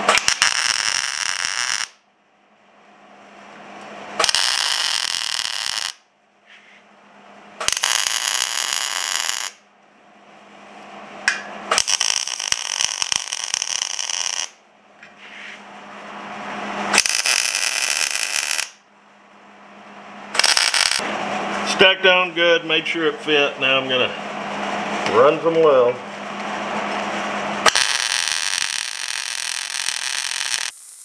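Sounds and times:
welding arc bursts: 0.0 - 2.0, 4.2 - 6.0, 7.6 - 9.6, 11.7 - 14.6, 16.9 - 18.8, 20.3 - 21.0, 27.6 - 31.0.

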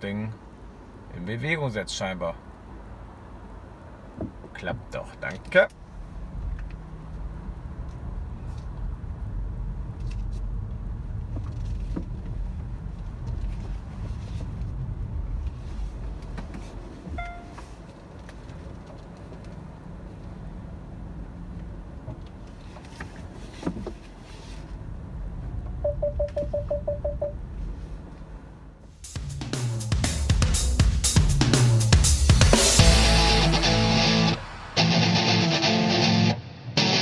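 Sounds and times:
car interior rumble: 4.0 - 28.8
parking sensor beeps: 17.2 - 17.7, 25.8 - 27.4
short beep: 17.2 - 17.7, 25.8 - 27.4.

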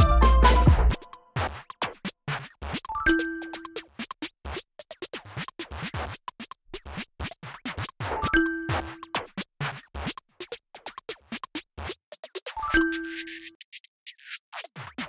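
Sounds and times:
background music with busy beat: 0.0 - 4.1, 7.2 - 13.9.

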